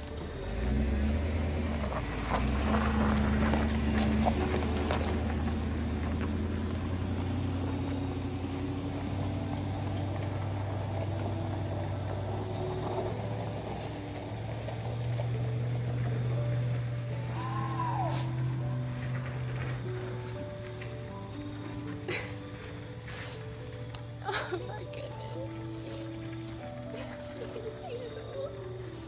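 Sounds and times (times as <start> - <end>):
low engine drone: 0.0 - 29.0.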